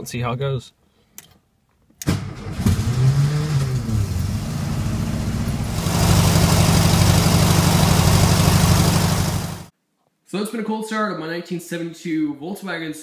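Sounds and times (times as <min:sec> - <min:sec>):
car engine starting and idling: 0:02.0 - 0:09.7.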